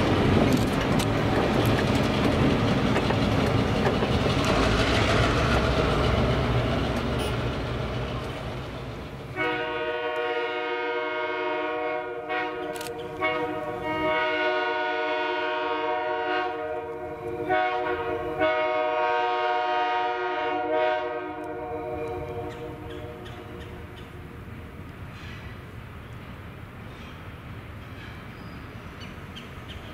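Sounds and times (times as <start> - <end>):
diesel locomotive rumbling: 0.0 - 29.9
locomotive air horn blasts: 9.4 - 22.9.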